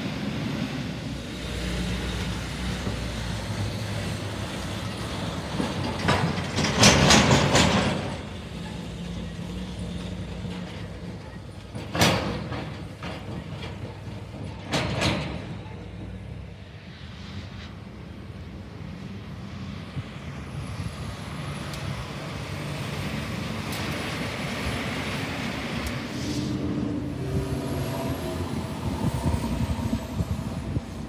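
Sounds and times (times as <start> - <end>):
truck engine hum: 15.6 - 31.0.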